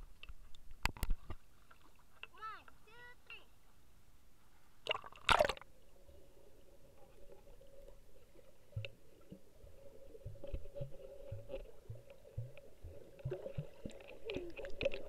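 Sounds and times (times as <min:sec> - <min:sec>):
pool water splashing: 0:04.8 - 0:15.0
dull underwater knocks: 0:08.7 - 0:09.4, 0:10.2 - 0:15.0.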